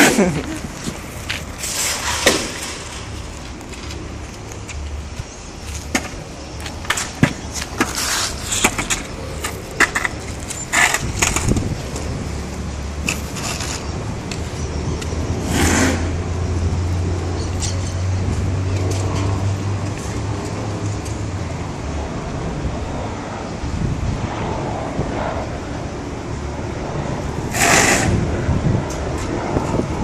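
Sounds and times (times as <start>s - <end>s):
longboard wheels rumbling on concrete: 0.0s - 24.4s, 26.5s - 30.0s.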